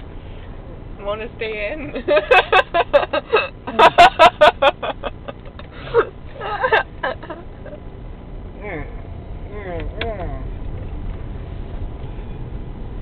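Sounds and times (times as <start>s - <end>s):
car cabin road noise: 0.0s - 13.0s
man laughing hard: 2.1s - 7.8s.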